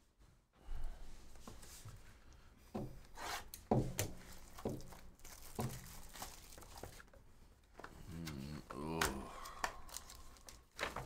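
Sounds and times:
hands scraping plastic wrap: 4.2s - 7.1s, 9.6s - 11.0s.

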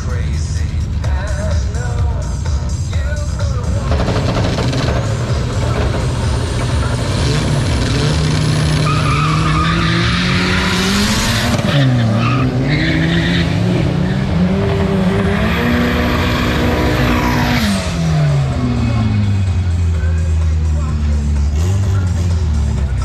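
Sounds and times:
car engines revving: 0.0s - 23.0s
tyres squealing: 6.5s - 15.0s.

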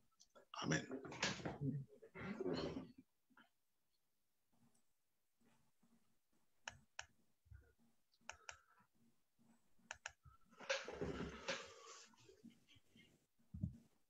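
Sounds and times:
computer mouse double-clicks: 9.9s - 10.2s.

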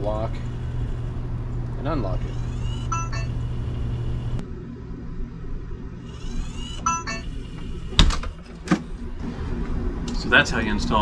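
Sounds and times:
low hum: 0.0s - 11.0s
lock motor whirring: 2.1s - 3.9s, 6.0s - 9.0s.

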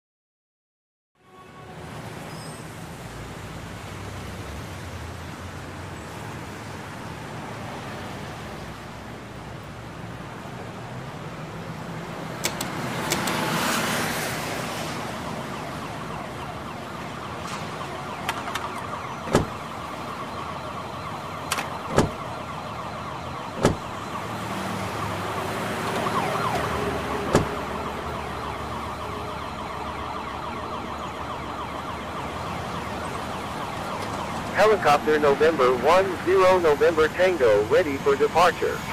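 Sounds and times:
steady background noise: 2.8s - 38.9s
sharp clicks: 12.4s - 13.5s
siren wailing: 13.4s - 38.9s.

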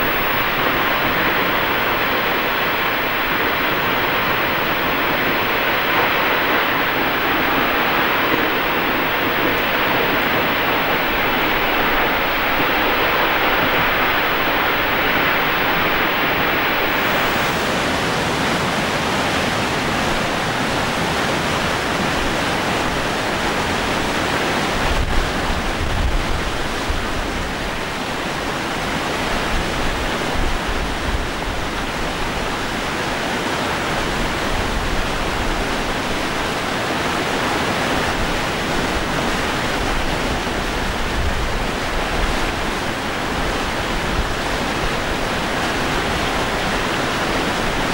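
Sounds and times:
deep water rumble: 0.0s - 18.4s
water rushing over cascades: 0.0s - 47.9s.

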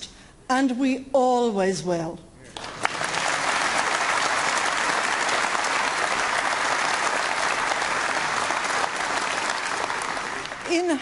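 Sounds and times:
audience applauding: 2.6s - 11.0s.

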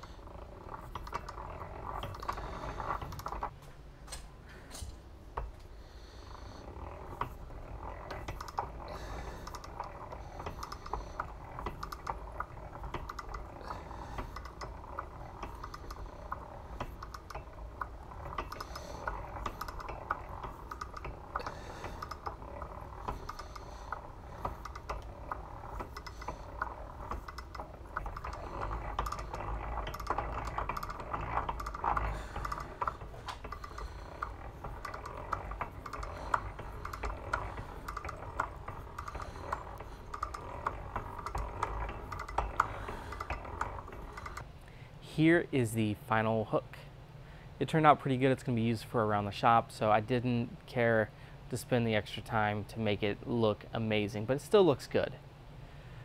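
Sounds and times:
hand-cranked drill clicking: 0.0s - 3.6s, 4.8s - 44.5s.

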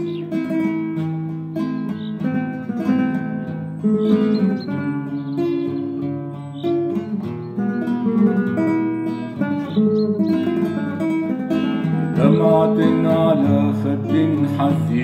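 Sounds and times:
classical guitar playing: 0.0s - 15.0s
man singing: 12.1s - 15.0s.

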